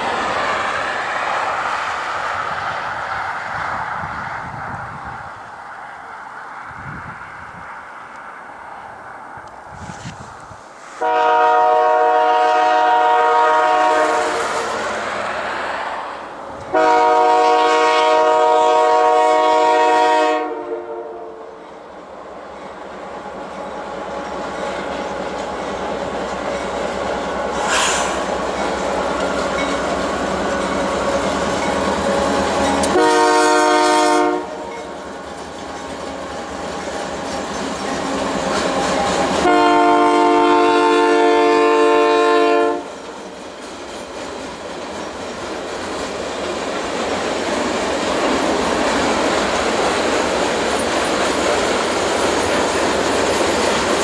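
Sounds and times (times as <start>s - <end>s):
locomotive horn blasts: 10.9s - 14.7s, 16.7s - 21.6s, 32.8s - 34.9s, 39.3s - 42.9s
locomotives running past: 13.9s - 16.8s.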